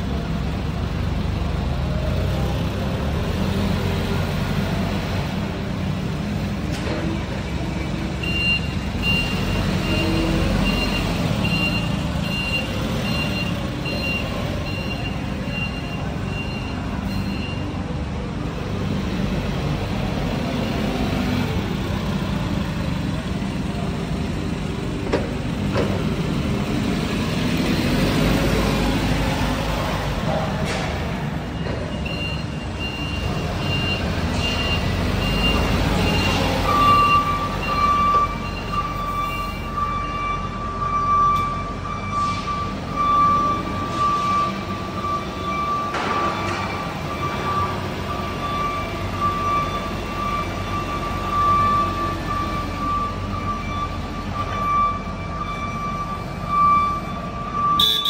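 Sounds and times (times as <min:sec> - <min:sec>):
forklift engine running: 0:00.0 - 0:58.0
forklift warning alarm beeps: 0:07.3 - 0:18.1, 0:27.8 - 0:58.0.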